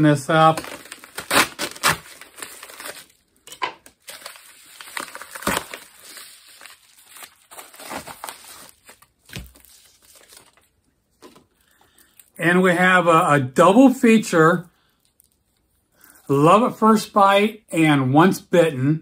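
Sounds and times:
packaging tearing and crinkling: 0.3 - 11.4.

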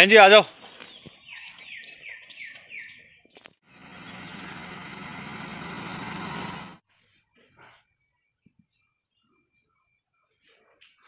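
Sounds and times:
bird calls: 0.6 - 4.8
road and wind noise: 3.4 - 6.8
motor scooter humming: 3.6 - 6.8.

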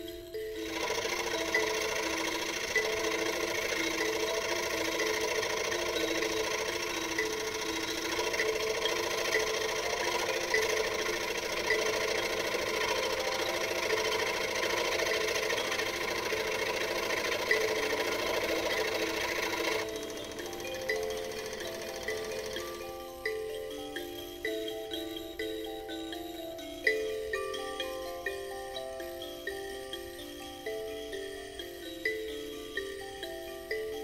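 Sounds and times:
electric scroll saw cutting wood: 0.3 - 23.8.

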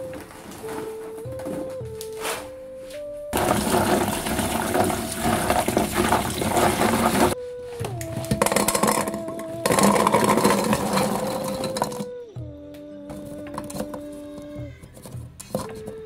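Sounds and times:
soft background music: 0.0 - 16.0
tap water running: 3.4 - 7.4.

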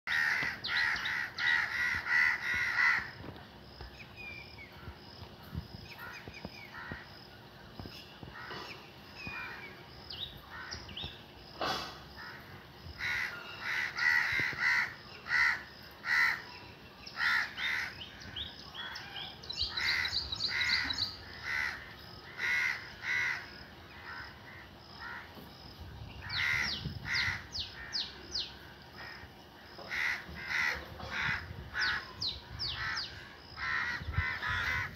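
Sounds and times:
crows cawing: 0.1 - 3.2, 6.0 - 7.1, 8.3 - 9.7, 10.5 - 10.9, 12.1 - 16.5, 17.2 - 25.4, 26.2 - 28.1, 29.0 - 34.9.

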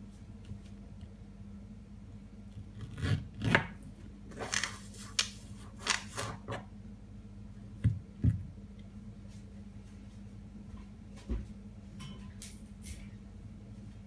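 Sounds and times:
knife chopping and scraping: 2.8 - 6.7.

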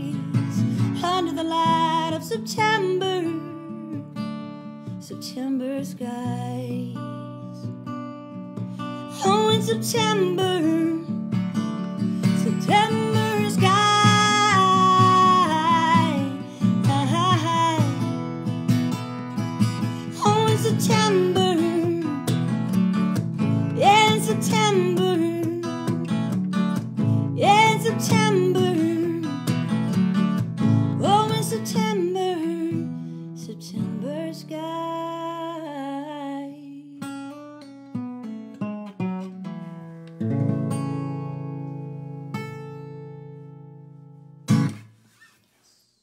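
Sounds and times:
woman singing wordlessly: 0.0 - 4.2, 5.0 - 7.7, 9.0 - 11.2, 12.2 - 18.4, 19.8 - 22.5, 23.6 - 26.4, 27.2 - 29.7, 30.9 - 37.4
strummed acoustic guitar: 0.0 - 35.8, 37.0 - 45.4.

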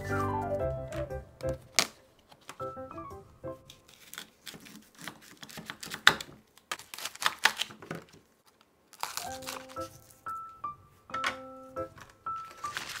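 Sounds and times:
light background music: 0.0 - 1.9, 2.6 - 3.9, 9.0 - 13.0
crinkling and rustling: 0.9 - 2.6, 3.6 - 10.3, 11.2 - 13.0.

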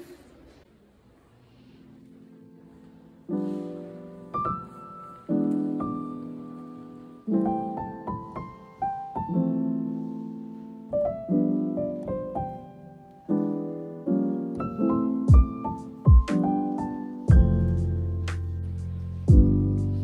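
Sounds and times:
piano music: 1.6 - 20.0.

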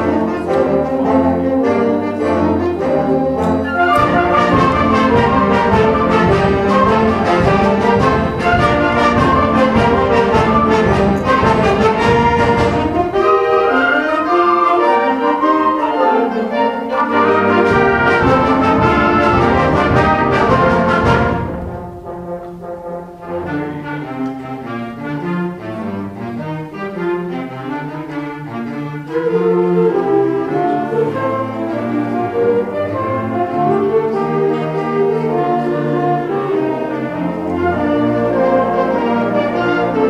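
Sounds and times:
symphonic band playing: 0.0 - 40.0
percussion strikes: 3.2 - 13.7, 17.1 - 24.5.

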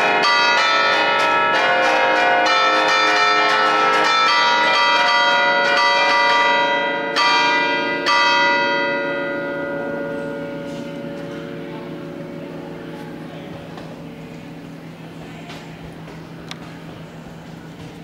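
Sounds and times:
large church bells pealing: 0.0 - 18.0.

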